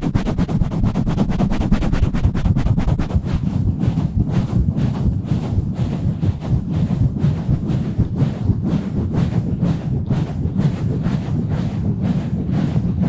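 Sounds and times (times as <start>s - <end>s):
hands rubbing microphone: 0.0s - 13.0s.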